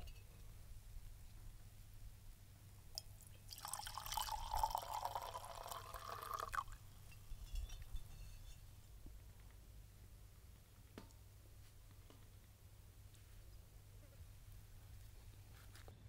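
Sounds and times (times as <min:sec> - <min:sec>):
liquid pouring into cup: 0:03.0 - 0:06.8.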